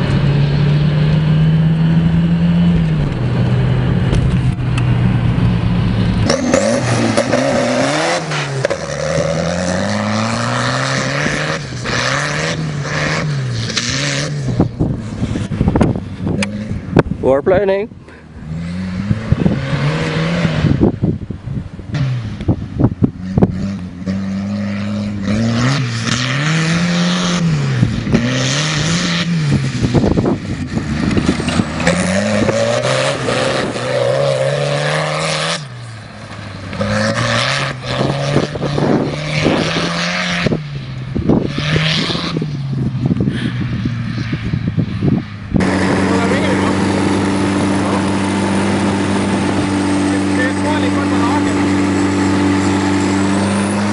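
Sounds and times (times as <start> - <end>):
tractor engine revving hard: 5.8 - 17.0, 18.3 - 21.0, 23.1 - 35.9, 36.7 - 43.7, 45.5 - 53.9.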